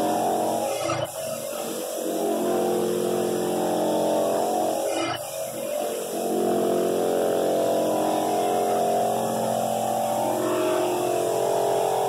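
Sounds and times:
floor sander motor hum: 0:01.4 - 0:04.9, 0:05.8 - 0:12.0.

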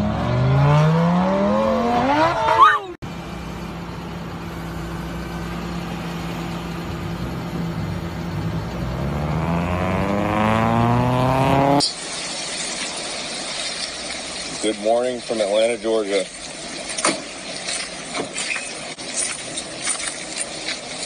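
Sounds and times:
vehicle engine running: 0:03.0 - 0:11.9.

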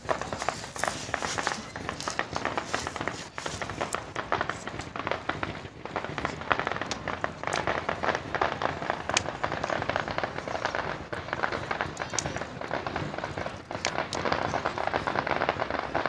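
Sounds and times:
fireworks crackling: 0:00.0 - 0:16.0.

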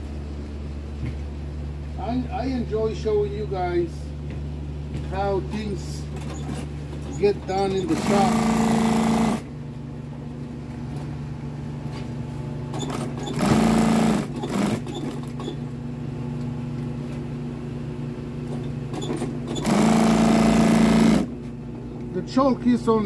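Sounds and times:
sewing machine stitching: 0:06.2 - 0:09.4, 0:12.7 - 0:15.6, 0:18.9 - 0:21.3
sewing machine motor humming: 0:06.2 - 0:09.5, 0:12.7 - 0:15.6, 0:18.9 - 0:21.4.

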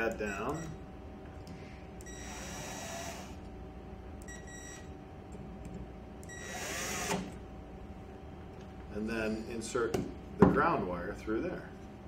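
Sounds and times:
screw gun whining: 0:02.0 - 0:03.4, 0:06.3 - 0:07.4.

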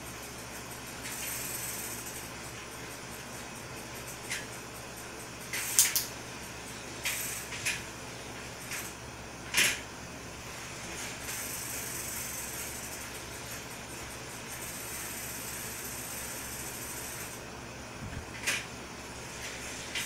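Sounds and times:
bicycle clicks and scrapes: 0:01.0 - 0:02.3, 0:07.0 - 0:07.9, 0:08.5 - 0:09.8, 0:19.3 - 0:20.0.

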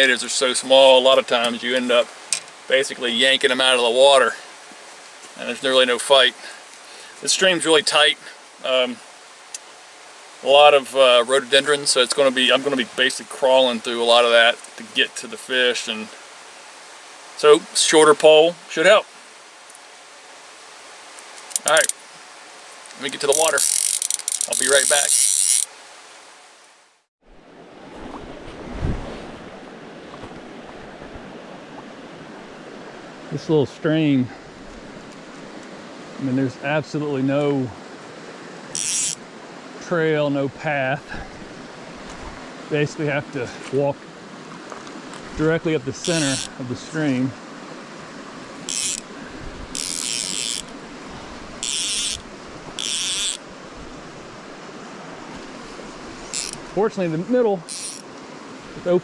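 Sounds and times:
stream running over rocks: 0:00.0 - 0:59.0
fly reel buzzing: 0:23.0 - 0:25.8, 0:38.7 - 0:39.2, 0:46.0 - 0:46.6, 0:48.4 - 0:54.5, 0:55.4 - 0:56.7, 0:57.6 - 0:58.1.

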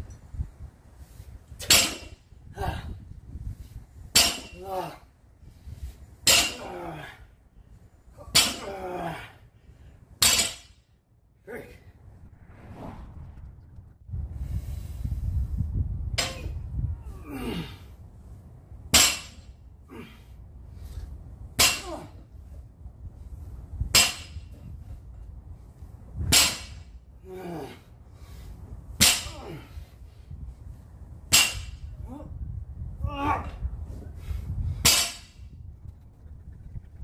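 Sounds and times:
person grunting: 0:17.1 - 0:17.8, 0:27.3 - 0:27.8.

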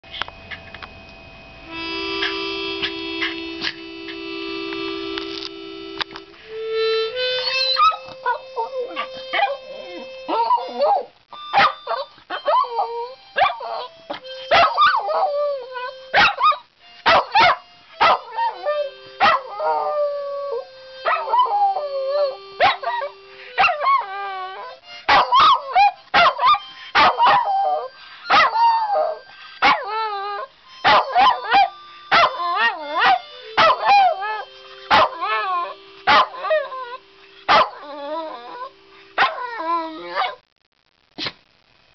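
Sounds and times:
held musical notes: 0:00.0 - 0:40.4
dog howling and yipping: 0:07.4 - 0:40.4.

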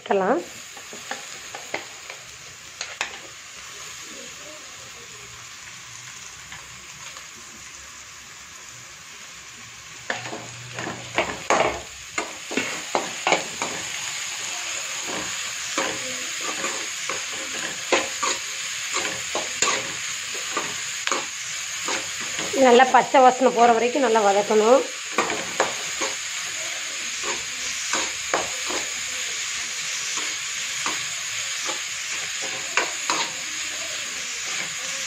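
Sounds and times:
vegetables sizzling in hot oil: 0:00.0 - 0:35.0
spatula scraping and knocking pan: 0:10.1 - 0:14.0, 0:14.9 - 0:22.6, 0:25.1 - 0:26.3, 0:27.2 - 0:29.0, 0:30.0 - 0:33.4.

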